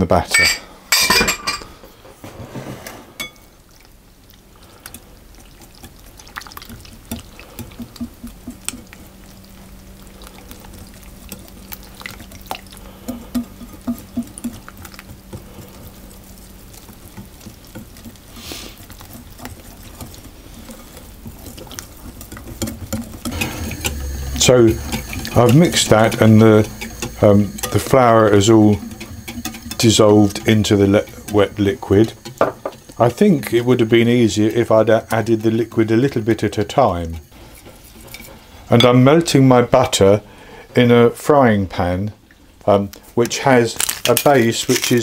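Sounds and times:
whisk stirring batter: 4.3s - 40.1s.

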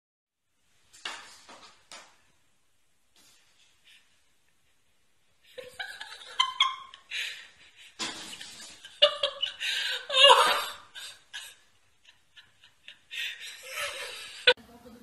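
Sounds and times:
people laughing: 5.5s - 14.6s.

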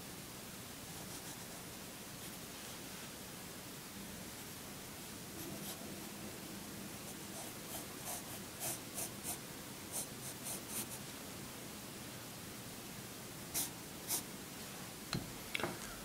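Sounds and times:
pencil scratching on paper: 7.3s - 9.4s, 10.0s - 11.0s, 13.6s - 14.2s.

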